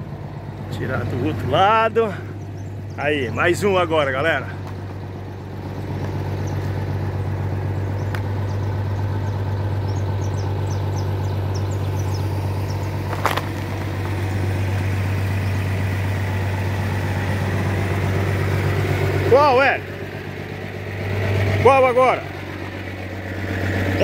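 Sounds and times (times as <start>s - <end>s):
vehicle engine idling: 0.0s - 24.0s.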